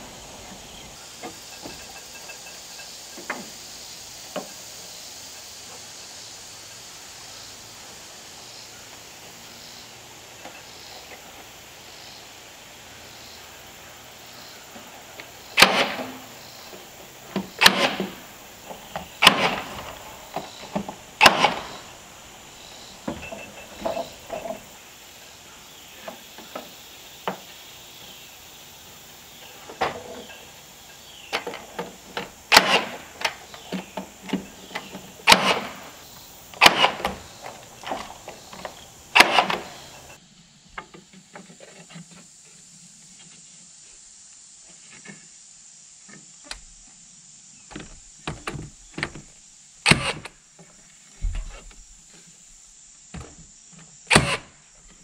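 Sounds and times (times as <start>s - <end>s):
nail gun shots: 15.6s - 16.3s, 17.4s - 18.3s, 19.0s - 20.5s, 21.2s - 21.9s, 32.5s - 33.5s, 34.8s - 36.0s, 36.6s - 38.1s, 39.1s - 40.0s, 49.8s - 50.3s, 54.1s - 54.6s
clicks and knocks of boards: 17.3s - 21.9s, 31.3s - 35.9s, 47.7s - 51.9s.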